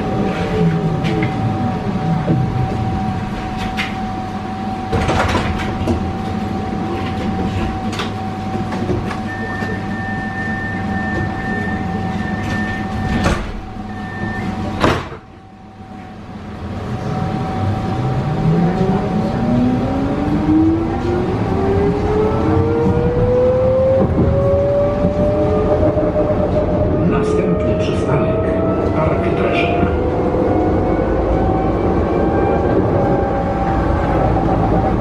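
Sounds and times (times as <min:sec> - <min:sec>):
tram electrical hum: 0:00.0 - 0:35.0
sliding doors closing with knocks: 0:04.9 - 0:06.1, 0:12.3 - 0:15.3
door warning tone: 0:07.1 - 0:15.6.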